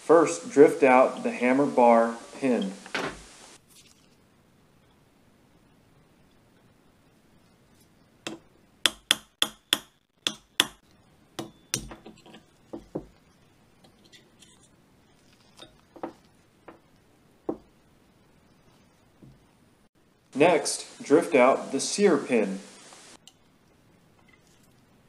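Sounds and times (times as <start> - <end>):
mallet tapping metal punch: 8.3 - 10.8, 11.4 - 12.2.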